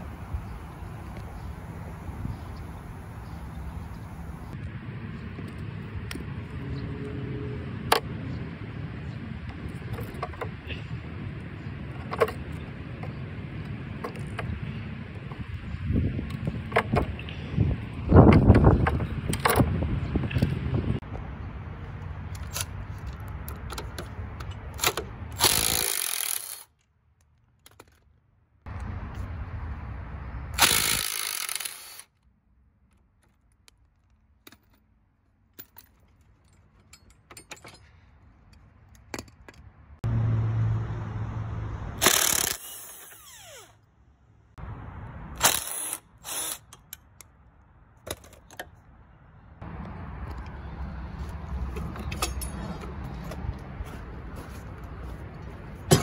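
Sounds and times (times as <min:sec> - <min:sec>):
power tool running: 0:30.6 - 0:32.1
sharp metal clicks: 0:42.0 - 0:43.2.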